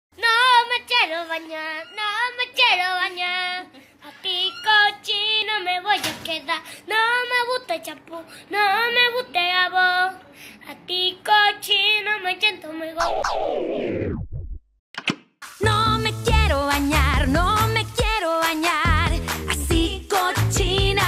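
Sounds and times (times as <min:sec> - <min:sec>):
high voice singing children's song: 0:15.6 - 0:21.0.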